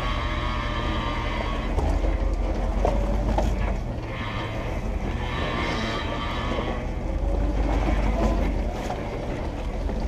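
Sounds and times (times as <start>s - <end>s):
engine running at a crawl: 0.0s - 10.0s
short creaks: 0.0s - 10.0s
tyres grinding over rocks: 0.0s - 10.0s.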